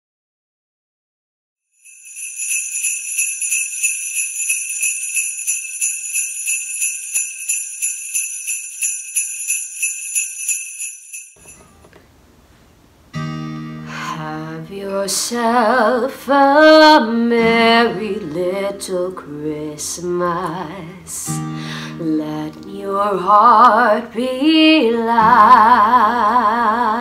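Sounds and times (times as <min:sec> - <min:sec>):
jingle bells shaken: 0:01.8 - 0:11.6
acoustic guitar chords: 0:13.1 - 0:27.0.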